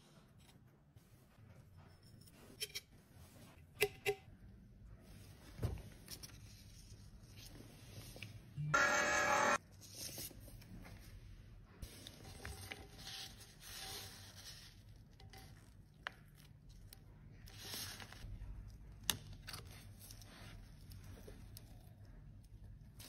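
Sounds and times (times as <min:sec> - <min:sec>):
paper rustling and rubbing: 0:11.8 - 0:15.0.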